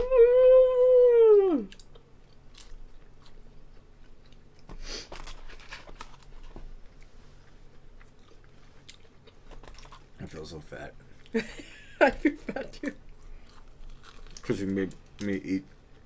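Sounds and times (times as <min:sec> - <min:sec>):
woman humming: 0:00.0 - 0:01.8
chewing and crunching food: 0:01.7 - 0:11.4, 0:12.8 - 0:16.0
paper rustling: 0:05.1 - 0:06.6.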